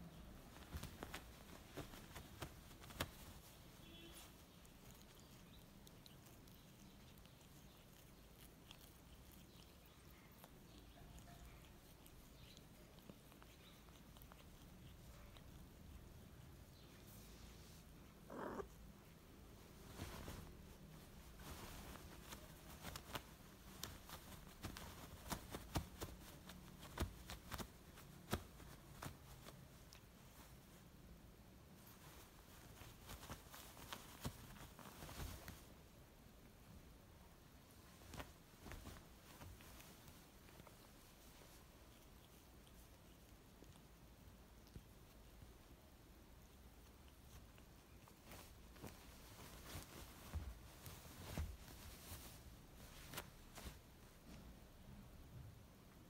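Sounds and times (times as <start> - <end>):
cat purring: 0.0 - 31.0
faint rustling on blanket: 0.0 - 56.0.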